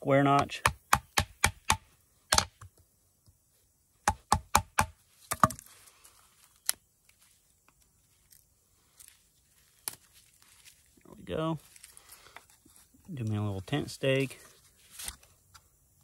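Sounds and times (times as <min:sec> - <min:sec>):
knife chopping wood: 0:00.3 - 0:02.7, 0:04.0 - 0:05.7
wood crackling: 0:04.8 - 0:15.7.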